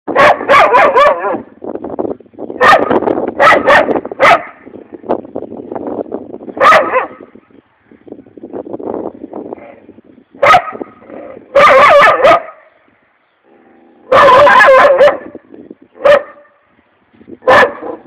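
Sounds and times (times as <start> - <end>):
dog barking: 0.1 - 1.4, 2.6 - 4.6, 6.6 - 7.2, 10.4 - 10.9, 11.5 - 12.6, 14.1 - 15.4, 16.0 - 16.5, 17.4 - 18.0.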